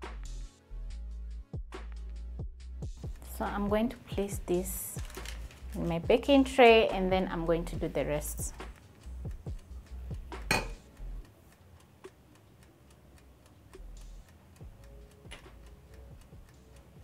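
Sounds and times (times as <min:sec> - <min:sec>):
fork tapping on countertop: 0:10.5 - 0:10.8
metal spoon clinking on bowl: 0:10.5 - 0:10.8.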